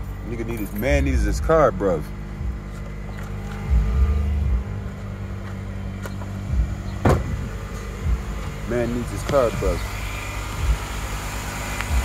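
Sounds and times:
car engine idling: 0.0s - 12.0s
sharp clunk: 7.0s - 7.4s.

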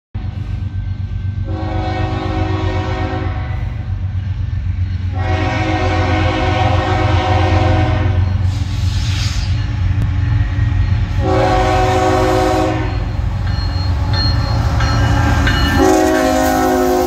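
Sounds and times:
low train rumble: 0.2s - 17.0s
locomotive air horn blasts: 1.4s - 3.8s, 5.1s - 8.2s, 11.2s - 13.1s, 15.7s - 17.0s.

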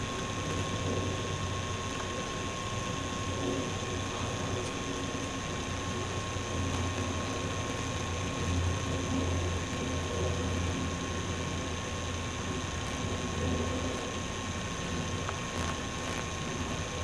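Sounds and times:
camcorder mechanism hum: 0.0s - 17.0s
high-pitched whine and hiss: 0.0s - 17.0s.

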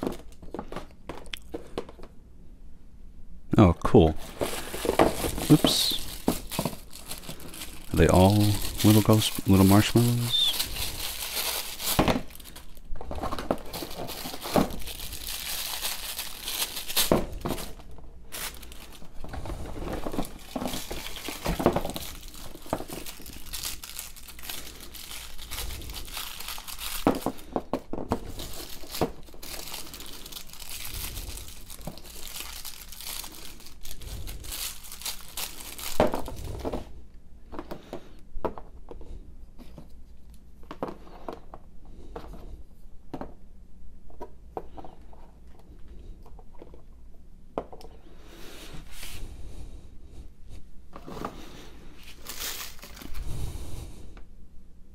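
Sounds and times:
tissue paper crinkling: 4.2s - 36.7s, 51.3s - 53.5s.

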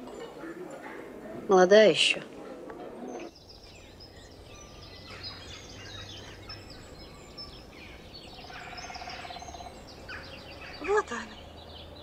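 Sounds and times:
songbirds chirping and twittering: 0.0s - 12.0s
rapid low bird trill: 3.1s - 12.0s.

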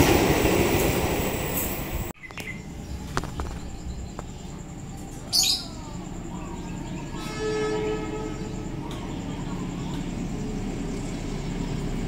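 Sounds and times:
low rumble: 2.6s - 5.1s
distant train horn: 6.7s - 10.2s.

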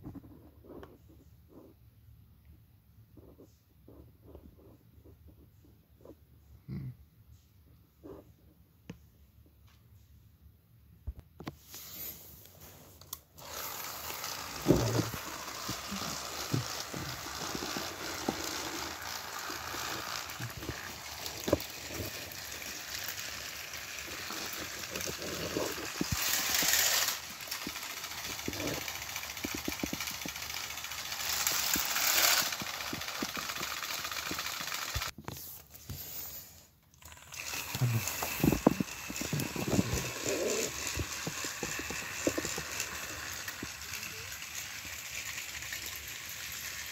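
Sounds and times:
toy train motor whir: 11.7s - 46.9s
wheel rattle on plastic track: 13.4s - 35.2s, 37.0s - 46.9s.

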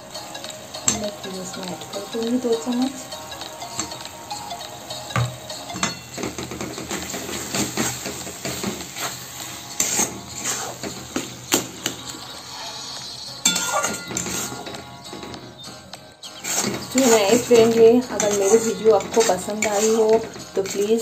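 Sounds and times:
metal spatula scraping steel pan: 5.2s - 11.0s, 12.6s - 14.8s, 16.2s - 21.0s.

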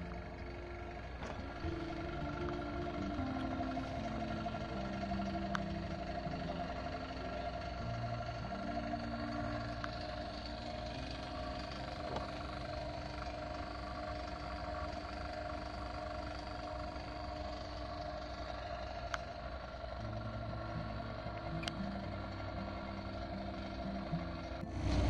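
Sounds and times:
vacuum pump humming: 0.0s - 25.0s.

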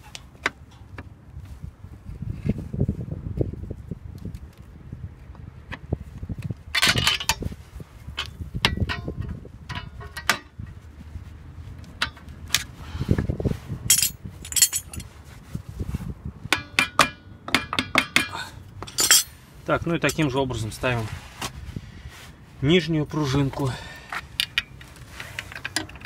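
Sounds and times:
metallic clinks and knocks: 8.2s - 10.5s, 13.9s - 15.1s, 16.5s - 19.4s.

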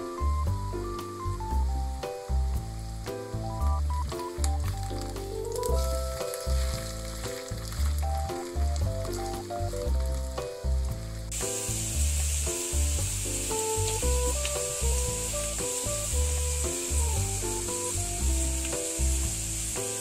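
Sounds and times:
background music with pulsing bass: 0.0s - 19.8s
pancake sizzling in oil: 4.0s - 20.0s.

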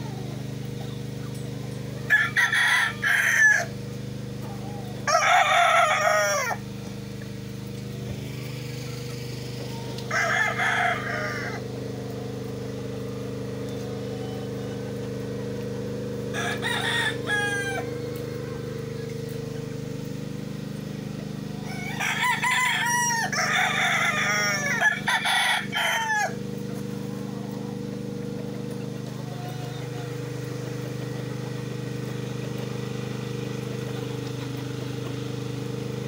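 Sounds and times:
roosters crowing: 0.0s - 36.0s
steady low hum: 0.0s - 36.0s.

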